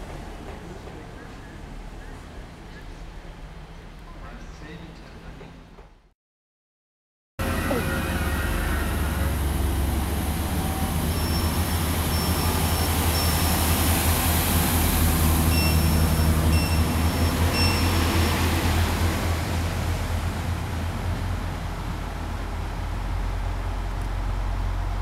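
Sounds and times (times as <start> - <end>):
diesel train engine drone: 7.4 - 25.0
short high beeps: 15.5 - 18.0.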